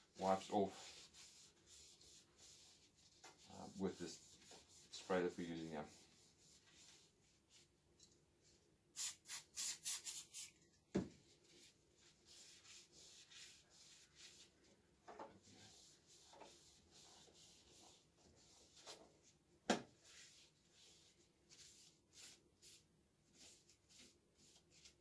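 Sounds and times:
cloth rubbing on metal: 0:00.2 - 0:07.7, 0:11.4 - 0:14.7, 0:15.4 - 0:19.3, 0:20.0 - 0:25.0.

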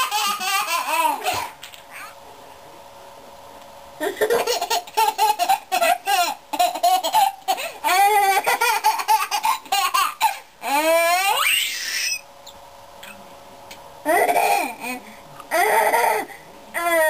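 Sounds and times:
baby laughing: 0:00.0 - 0:02.2, 0:04.0 - 0:12.2, 0:14.1 - 0:17.0
baby squealing: 0:10.7 - 0:12.2.

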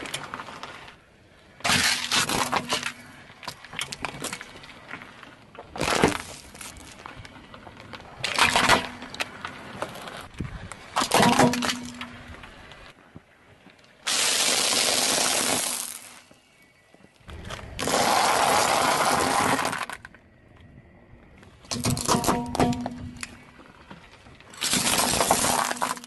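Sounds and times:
car tyre crushing objects: 0:00.0 - 0:12.9, 0:14.0 - 0:16.6, 0:17.2 - 0:20.3, 0:21.6 - 0:26.0
plastic cracking and crunching: 0:17.5 - 0:20.2, 0:24.5 - 0:26.0.

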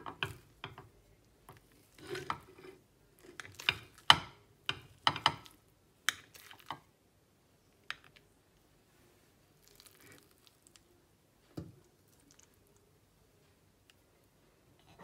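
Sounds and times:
knife scraping ceramic bowl: 0:01.8 - 0:03.9.

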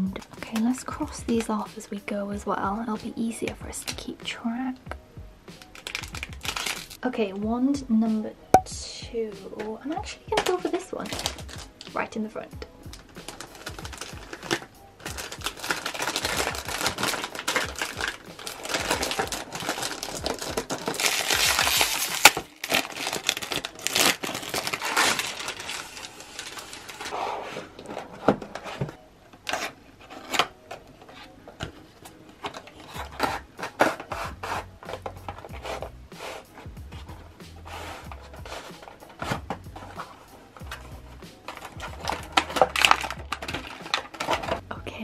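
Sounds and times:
plastic wrapper crinkling and tearing: 0:05.6 - 0:07.0, 0:10.3 - 0:11.9, 0:12.9 - 0:28.3, 0:41.4 - 0:44.6.

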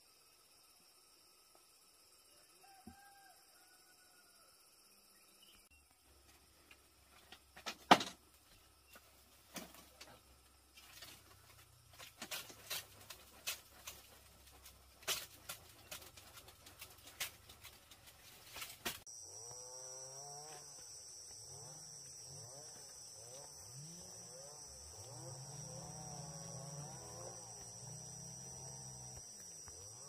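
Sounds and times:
dry leaf rustling: 0:10.7 - 0:19.0.

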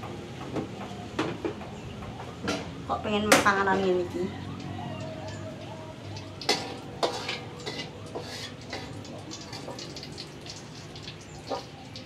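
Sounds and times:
food frying in hot oil: 0:00.0 - 0:12.0
metal spatula striking wok: 0:06.4 - 0:09.9.

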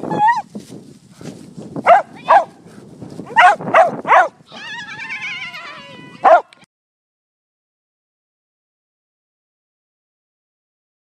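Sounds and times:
dogs barking: 0:01.8 - 0:02.6, 0:03.3 - 0:04.4, 0:06.2 - 0:06.6.

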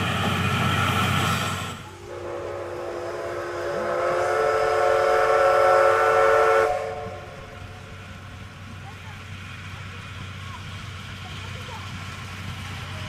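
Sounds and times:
rushing train noise: 0:00.0 - 0:13.0
steam whistle blast: 0:02.0 - 0:07.6.

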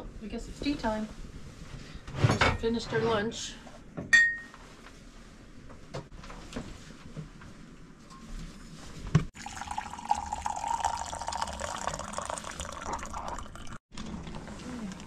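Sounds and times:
water pouring into a mug: 0:09.4 - 0:13.8.

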